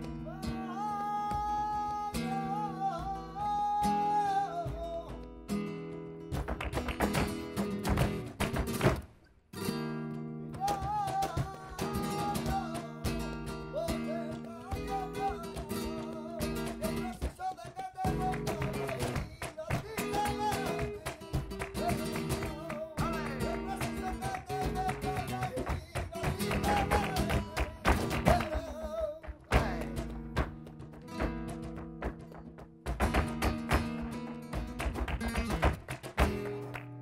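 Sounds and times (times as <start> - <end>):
person singing: 0.0 - 5.2, 10.6 - 30.2
dancer's heels stamping: 0.0 - 5.4, 6.3 - 9.2, 10.5 - 37.0
acoustic guitar: 0.0 - 37.0
hand clapping: 0.5 - 9.2, 10.5 - 37.0
cajon hits: 1.0 - 5.3, 6.3 - 9.2, 10.5 - 37.0.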